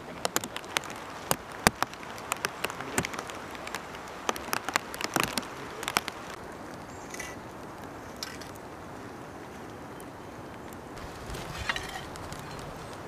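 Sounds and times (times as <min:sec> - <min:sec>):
steady hiss: 0:00.0 - 0:13.0
sharp ticks and crackles: 0:00.1 - 0:08.6.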